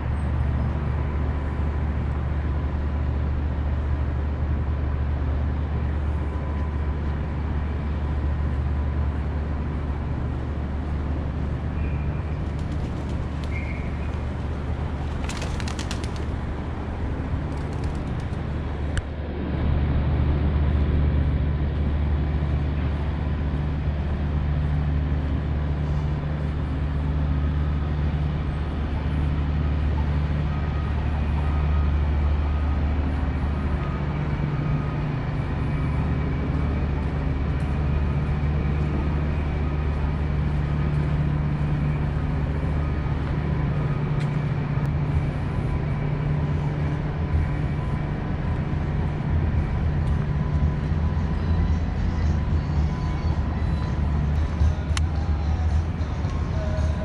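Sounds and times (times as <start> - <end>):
low city hum: 0.0 - 57.0
bird chirps: 13.4 - 14.1.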